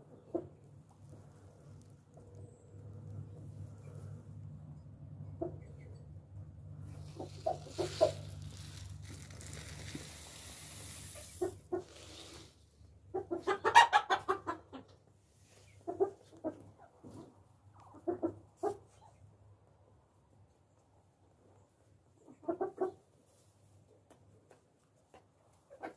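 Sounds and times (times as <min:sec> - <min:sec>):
chickens clucking: 0:05.2 - 0:06.1, 0:06.8 - 0:10.0, 0:11.0 - 0:19.2, 0:22.2 - 0:23.4, 0:24.5 - 0:25.9.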